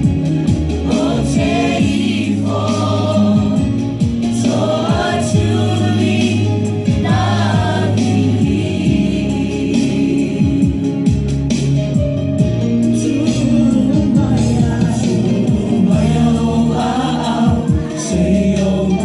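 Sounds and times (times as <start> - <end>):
instrumental accompaniment: 0.0 - 19.0
children and women singing: 0.9 - 3.8, 4.4 - 10.6, 15.6 - 19.0
boy singing into microphone: 17.5 - 19.0.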